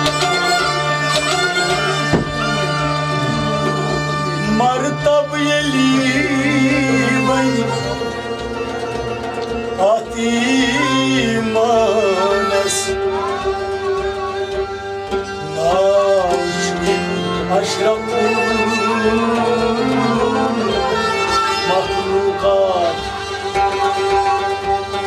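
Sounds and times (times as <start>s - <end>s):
bowed sarangi melody: 0.0s - 25.0s
harmonium: 0.0s - 25.0s
plucked strings: 0.0s - 25.0s
held drone: 1.7s - 4.6s
steady low drum beat: 2.0s - 5.0s.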